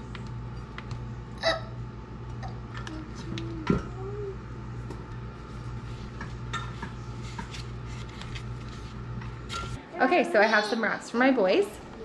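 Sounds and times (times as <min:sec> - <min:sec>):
steady low hum: 0:00.0 - 0:10.4.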